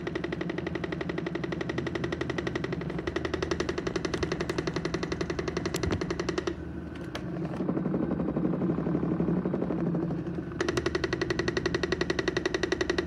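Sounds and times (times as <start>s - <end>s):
vibration plate rattling: 0.0s - 6.6s
vibration plate humming: 0.0s - 13.0s.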